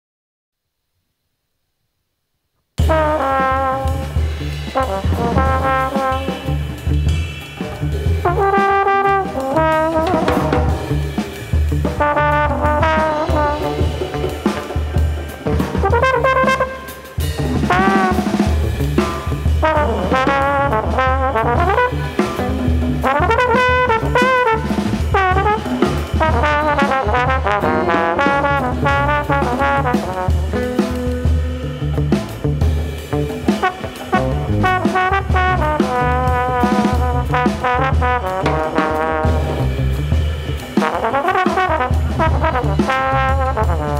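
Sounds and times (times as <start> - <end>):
drum kit: 2.8 - 43.9
trombone jazz line: 2.8 - 43.9
electric guitar: 13.2 - 16.0, 21.9 - 23.1, 27.6 - 29.7, 30.4 - 34.7.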